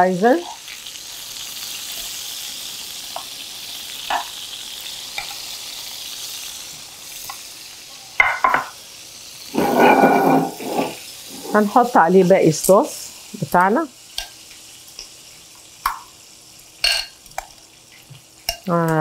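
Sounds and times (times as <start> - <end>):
oil sizzling in a frying pan: 0.0 - 19.0
scraping in a pan: 9.5 - 11.8
tongs clicking against pan: 14.1 - 14.4, 15.8 - 16.1, 16.8 - 17.6, 18.4 - 19.0.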